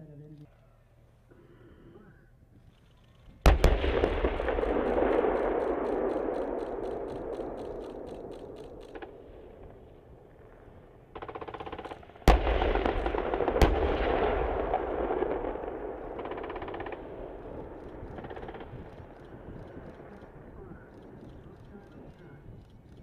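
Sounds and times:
machine-gun bursts: 3.5s - 9.1s
tank gun blasts: 3.5s - 20.4s.

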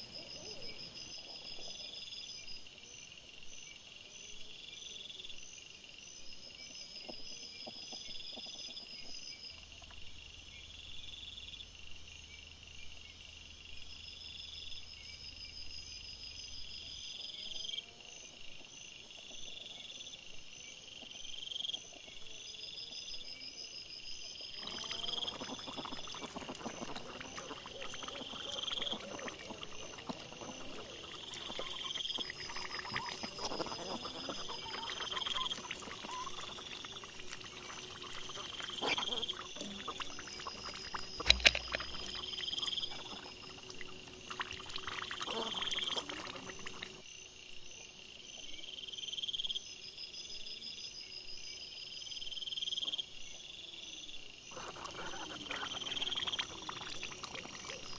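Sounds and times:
insect chirping: 0.0s - 57.9s
boar grunting and rooting: 24.6s - 47.0s.

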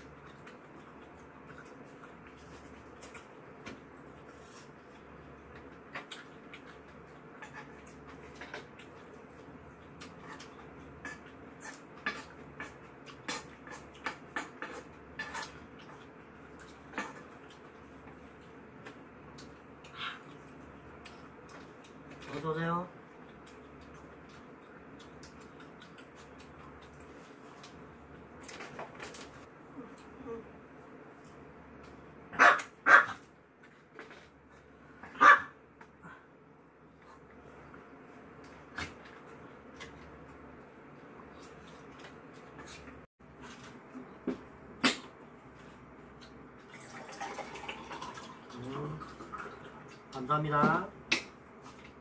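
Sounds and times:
dog barking: 32.3s - 33.2s, 35.1s - 35.6s.

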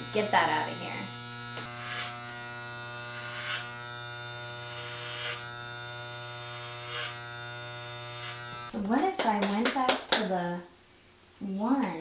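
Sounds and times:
electric hair clippers buzzing: 0.0s - 8.8s
clipper blade rasping through hair: 1.4s - 8.8s.

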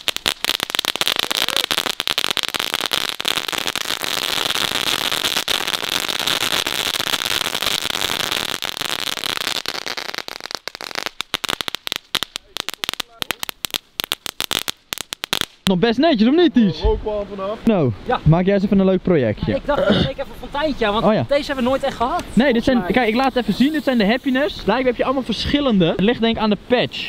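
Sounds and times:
firework hiss: 0.0s - 15.7s, 20.6s - 25.4s
firework crackling: 0.0s - 15.8s, 20.6s - 25.4s.

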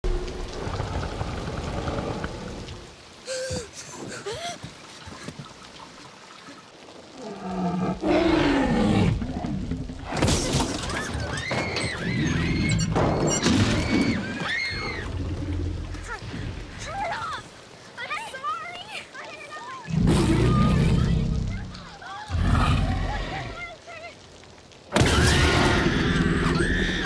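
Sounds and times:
heavy rain: 0.0s - 27.0s
dinosaur deep growls: 19.9s - 23.5s.

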